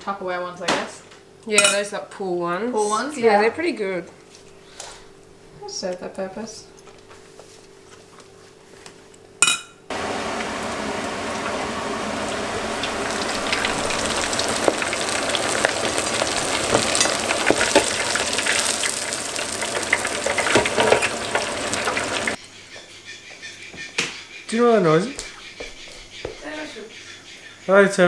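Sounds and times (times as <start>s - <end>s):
oil sizzling in a deep fryer: 9.9s - 22.4s.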